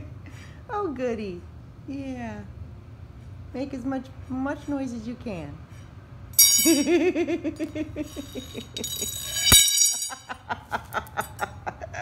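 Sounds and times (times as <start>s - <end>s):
toy clinking and rattling: 6.4s - 7.0s, 8.0s - 10.3s.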